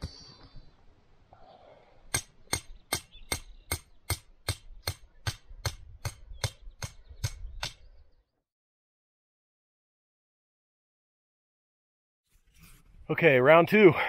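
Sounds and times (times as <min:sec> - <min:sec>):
hammer striking steel stakes: 0:02.1 - 0:07.8.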